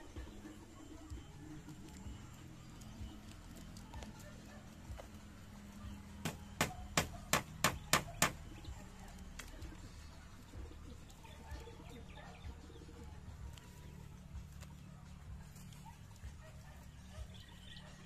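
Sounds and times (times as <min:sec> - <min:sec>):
sharp knocks: 0:06.2 - 0:08.4.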